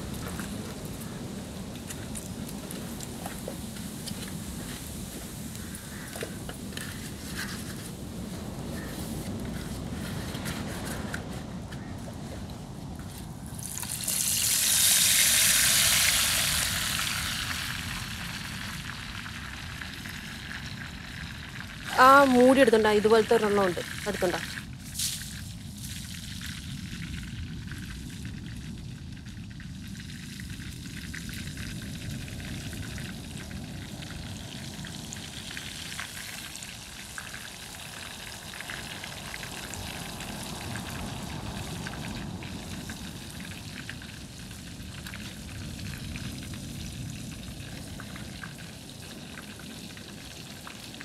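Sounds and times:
chicken sizzling in hot oil: 13.5 - 51.0.

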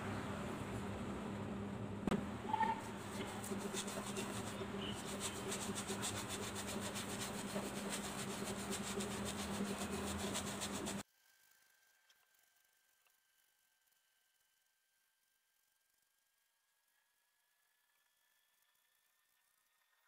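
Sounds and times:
low hum: 0.0 - 11.0
brush scratching on canvas: 2.5 - 11.0.

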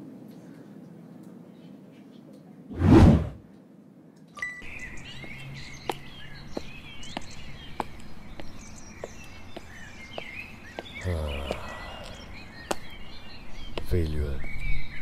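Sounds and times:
loud rushing hit: 2.8 - 3.4
birds chirping: 4.6 - 15.0.

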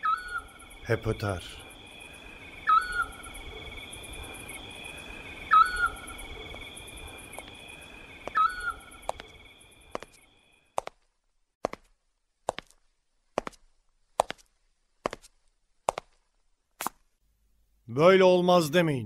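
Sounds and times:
owl whistling: 0.0 - 0.8, 2.0 - 9.1
night insects chorus: 0.0 - 10.7.

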